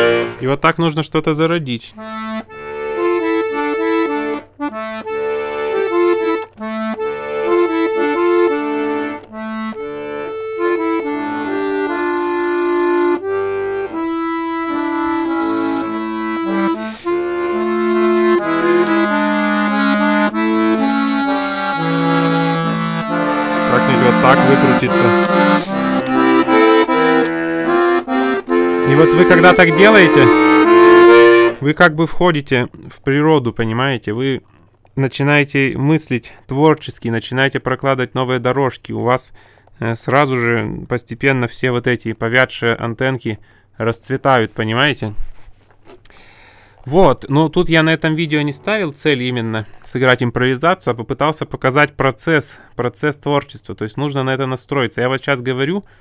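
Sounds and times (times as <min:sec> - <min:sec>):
button accordion playing: 0:00.0 - 0:00.6, 0:02.0 - 0:31.7, 0:46.2 - 0:49.8.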